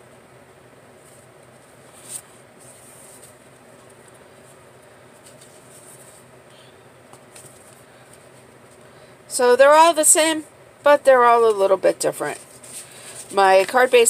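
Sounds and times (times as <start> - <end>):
faint room hum: 0.0 - 14.0
paper cards rustling: 1.1 - 4.6, 5.2 - 6.2, 7.1 - 8.8, 12.2 - 14.0.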